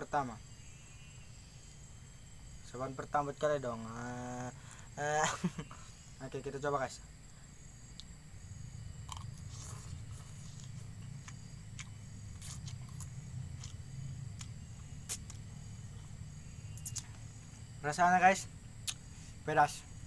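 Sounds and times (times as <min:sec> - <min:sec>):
low steady rumble: 0:07.0 - 0:20.0
person chewing noodles: 0:09.1 - 0:16.1.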